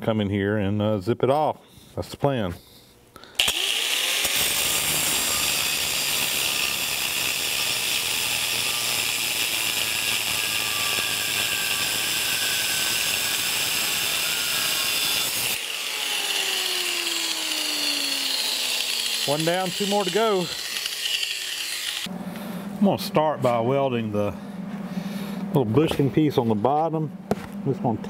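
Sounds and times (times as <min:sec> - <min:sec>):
angle grinder cutting steel: 0:03.4 - 0:22.1.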